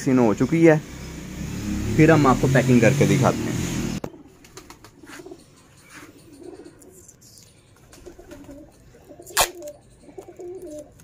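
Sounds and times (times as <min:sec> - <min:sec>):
pigeons cooing: 0:04.0 - 0:11.0.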